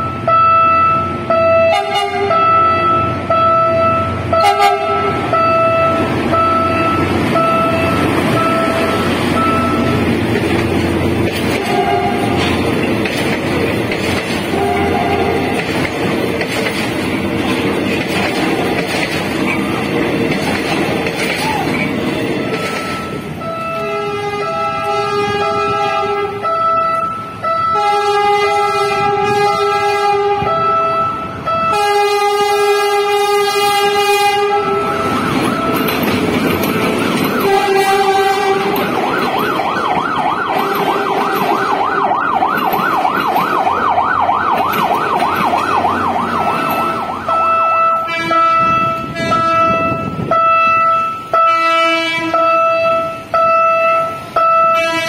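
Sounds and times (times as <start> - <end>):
train horn blasts: 0.0 - 10.0, 11.5 - 12.6, 14.5 - 15.6, 22.9 - 35.8, 37.4 - 38.9, 46.5 - 55.0
warbling siren: 0.0 - 10.2, 33.6 - 51.6
train rumbling past: 0.0 - 55.0.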